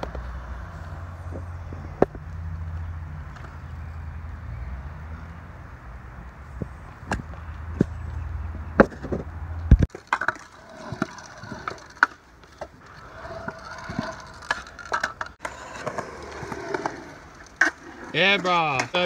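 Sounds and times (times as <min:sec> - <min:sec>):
scooter rolling on concrete: 0:00.0 - 0:19.0
skateboard wheels rolling on concrete: 0:00.0 - 0:19.0
skateboard clacks: 0:08.8 - 0:19.0.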